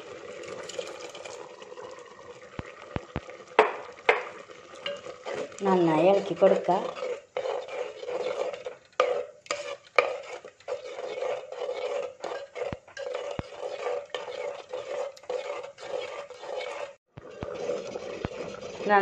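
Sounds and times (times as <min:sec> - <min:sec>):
spoon scraping clay pot: 0:00.4 - 0:01.4, 0:02.6 - 0:19.0
spoon stirring thick mixture: 0:02.3 - 0:19.0.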